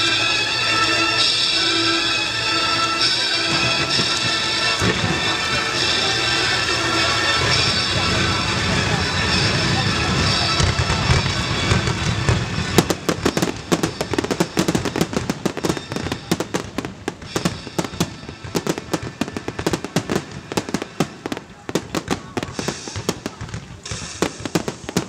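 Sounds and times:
fireworks bangs and crackles: 0.0s - 25.0s.

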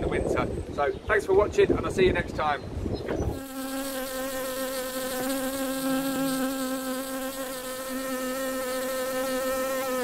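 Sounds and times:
bee buzzing: 3.1s - 10.0s.

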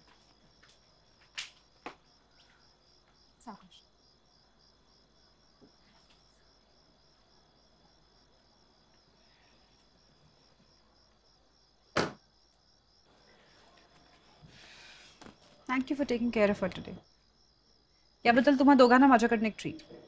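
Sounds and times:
crickets chirping: 0.0s - 20.0s
loud thump: 12.0s - 12.2s.

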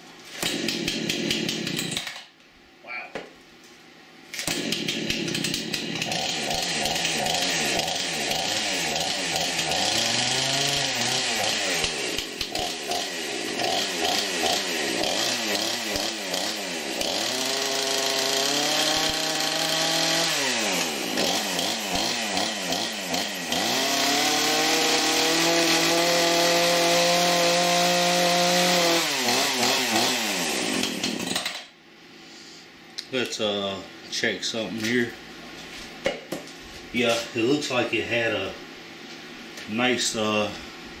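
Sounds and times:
chainsaw engine revving: 0.4s - 2.2s, 4.4s - 31.6s.

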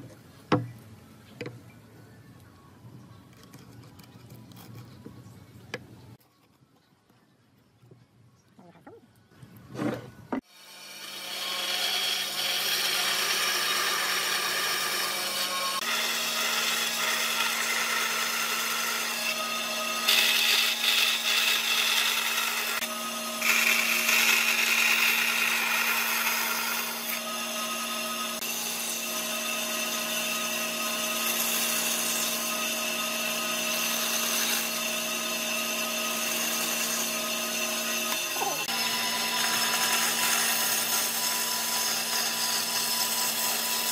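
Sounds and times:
bandsaw cutting wood: 10.4s - 43.9s.

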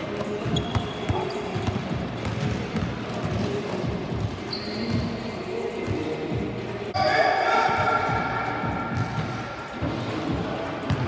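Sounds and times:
sneaker squeaks: 0.3s - 2.8s, 4.2s - 5.4s.

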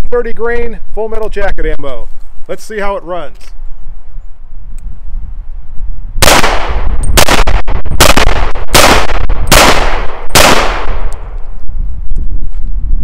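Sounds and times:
pistol shots with echo: 6.2s - 11.3s.

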